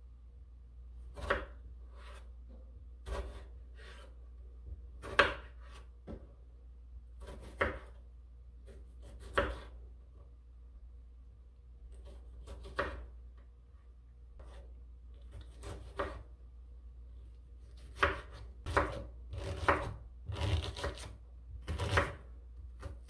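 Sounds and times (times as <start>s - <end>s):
knife slicing a tomato: 1.0s - 4.2s, 5.0s - 6.2s, 7.2s - 8.0s, 8.6s - 9.8s, 11.9s - 13.2s, 14.4s - 16.3s, 17.6s - 23.0s.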